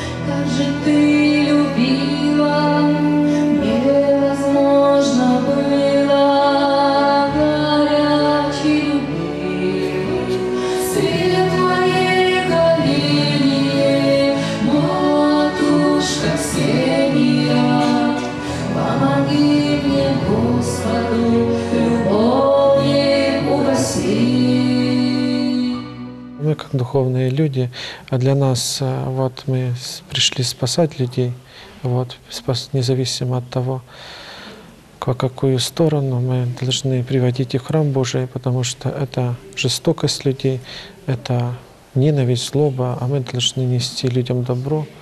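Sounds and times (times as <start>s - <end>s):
woman singing with vibrato: 0.0s - 26.4s.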